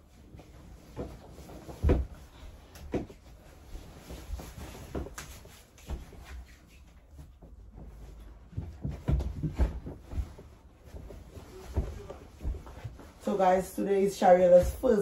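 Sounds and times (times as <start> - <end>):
clothes rustling: 0.0 - 15.0
knocks and thumps: 0.9 - 3.2, 7.2 - 13.2.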